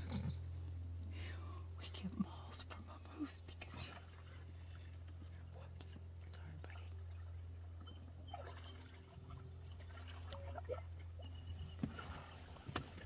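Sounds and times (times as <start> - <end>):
water dripping and sloshing: 3.6 - 13.0.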